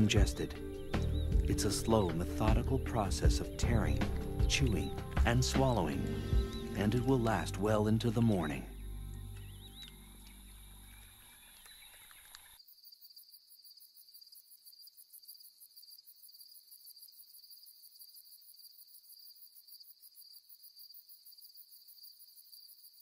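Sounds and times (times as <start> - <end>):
music: 0.0 - 11.2
night insects trilling: 2.9 - 23.0.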